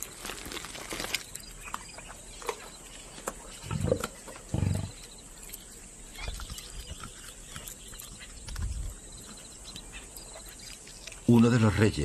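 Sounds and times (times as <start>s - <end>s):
meat tearing and chewing: 0.0s - 1.8s, 5.1s - 9.0s
lioness growling: 3.6s - 5.0s.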